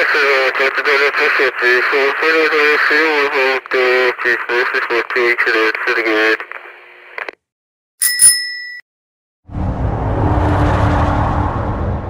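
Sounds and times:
walkie-talkie voice: 0:00.0 - 0:07.3
radio static: 0:00.0 - 0:07.4
click with high ding: 0:08.0 - 0:08.8
turbine rushing noise: 0:09.5 - 0:12.0.

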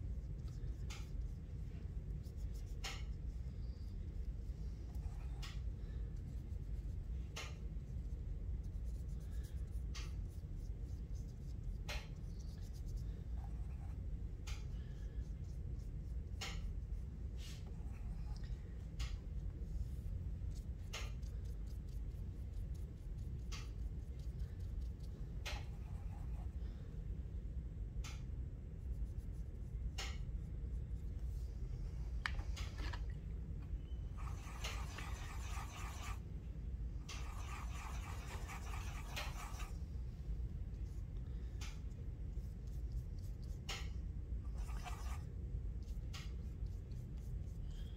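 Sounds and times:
paintbrush scratching on paper: 0:00.0 - 0:18.4, 0:19.0 - 0:26.6, 0:34.1 - 0:36.3, 0:37.0 - 0:40.0, 0:42.2 - 0:47.9
low background hum: 0:00.0 - 0:47.9
paintbrush tapping: 0:00.1 - 0:04.3, 0:34.1 - 0:36.2, 0:37.0 - 0:39.8, 0:40.7 - 0:45.2.

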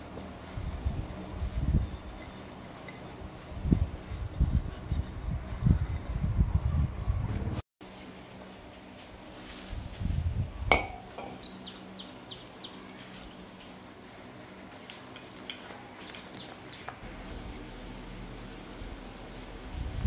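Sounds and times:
faint clicks and handling noise: 0:12.8 - 0:17.1.

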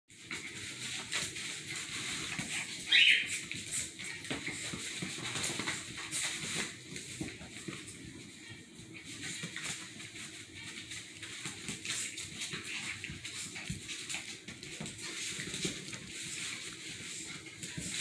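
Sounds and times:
dogs scuffling and rustling: 0:00.1 - 0:18.0
dog yelp: 0:02.6 - 0:03.4.

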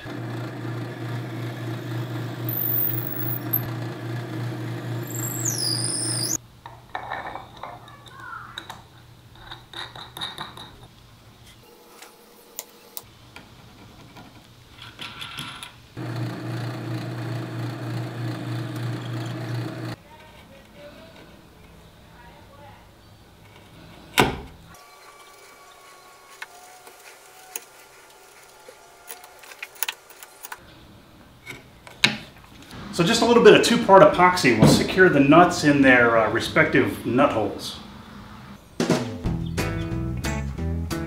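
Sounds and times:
drill press boring wood: 0:00.0 - 0:06.4, 0:16.0 - 0:20.0
high wavering whine: 0:01.8 - 0:03.7, 0:04.9 - 0:06.4.

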